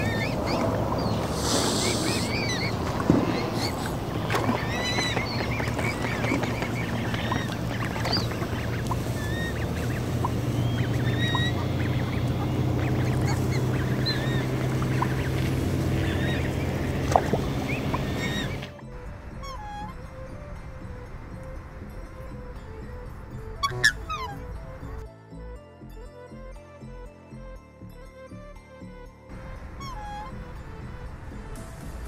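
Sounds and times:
steady low hum: 0.0s - 23.6s
geese and ducks calling: 0.0s - 24.9s, 29.6s - 30.6s.

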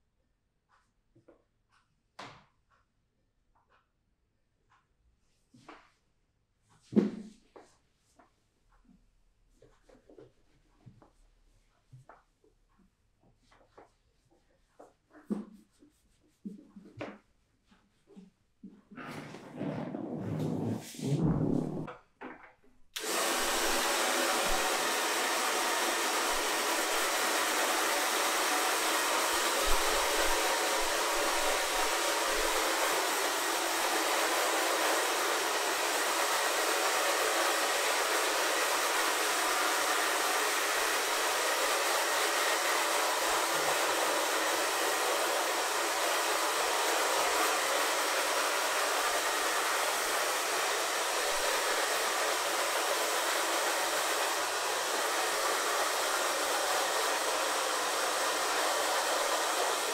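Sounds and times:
hair dryer blowing: 19.6s - 21.9s, 23.0s - 59.9s.

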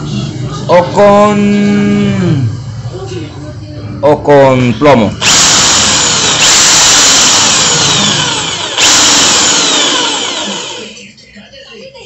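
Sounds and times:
drill press boring into metal: 5.2s - 11.0s.

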